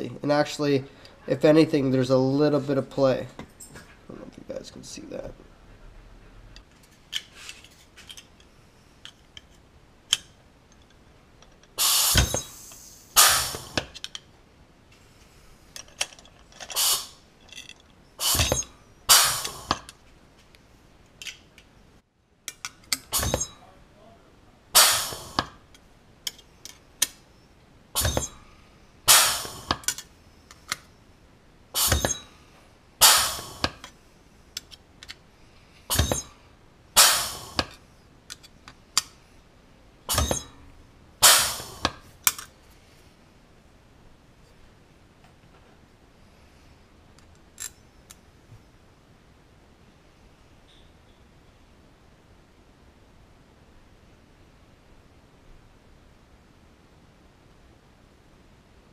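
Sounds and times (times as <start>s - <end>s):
metallic clunks of dimpling tool: 40.1s - 40.6s.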